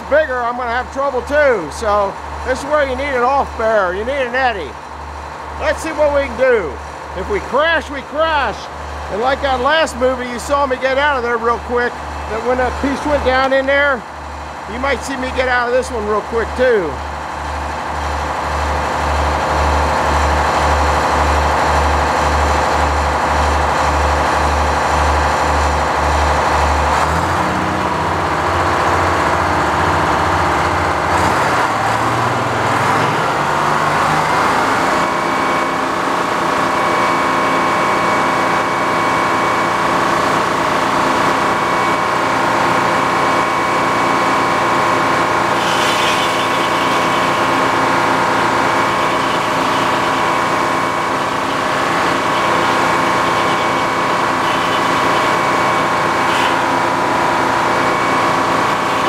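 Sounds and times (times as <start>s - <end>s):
power unit pulsing: 0.0s - 59.0s
circular saw blade whining: 33.3s - 59.0s
saw blade cutting log: 45.4s - 47.8s.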